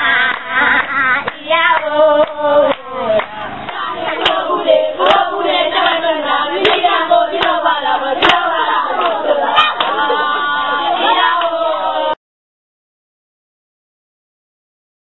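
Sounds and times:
children singing: 0.0s - 12.2s
hand claps: 0.2s - 6.0s, 6.6s - 10.1s.

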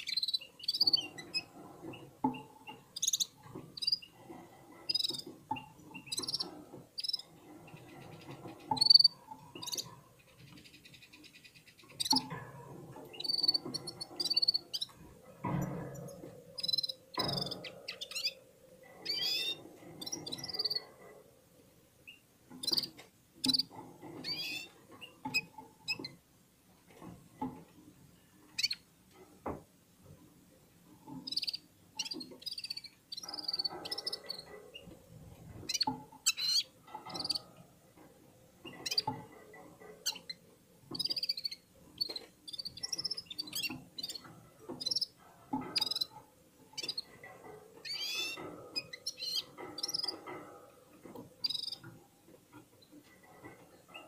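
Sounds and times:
caged bird twittering: 0.0s - 4.2s, 4.8s - 12.3s, 13.0s - 20.9s, 22.0s - 26.2s, 28.5s - 28.9s, 31.1s - 35.0s, 35.6s - 37.4s, 38.6s - 39.3s, 40.0s - 47.1s, 47.8s - 50.4s, 51.4s - 52.0s.

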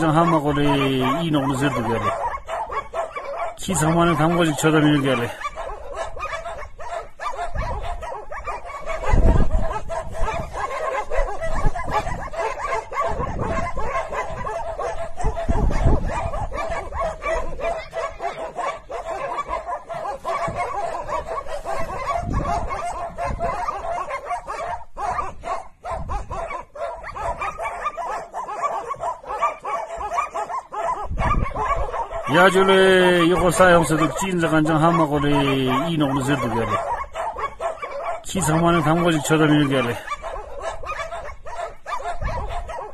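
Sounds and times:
dog yelps and whimpers: 0.0s - 3.6s, 4.2s - 42.9s
dogs barking: 0.0s - 42.9s.

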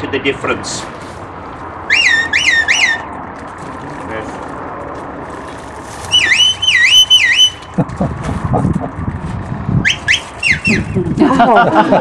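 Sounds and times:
low rough noise: 0.0s - 12.0s
shrill swooping whistle: 1.9s - 3.1s, 6.1s - 7.7s, 9.8s - 11.0s.

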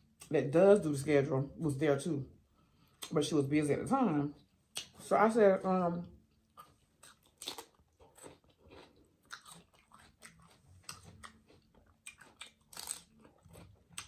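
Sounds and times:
crunching and chewing celery: 6.3s - 14.0s.

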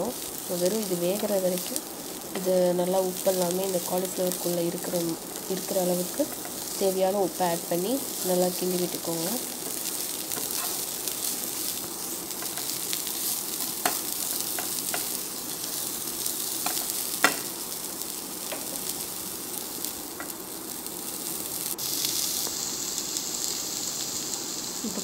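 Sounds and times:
vegetables sizzling in oil: 0.0s - 25.0s
wooden spatula tapping a pan: 13.8s - 15.1s, 16.6s - 17.5s, 18.5s - 18.8s.

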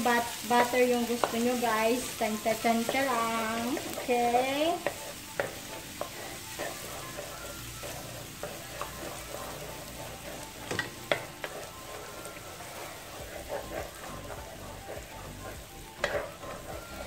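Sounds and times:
butter and garlic sizzling: 0.0s - 17.0s
wooden spatula scraping a pan: 0.0s - 17.0s
spatula knocking on pan: 4.7s - 6.8s, 10.7s - 11.6s.

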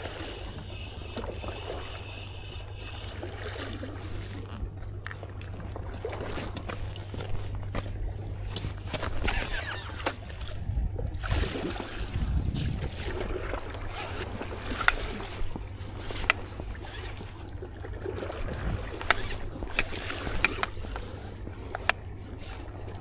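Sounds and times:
water sloshing and lapping: 0.0s - 23.0s
sharp clicks: 0.6s - 3.3s
wind on microphone: 10.5s - 15.7s.

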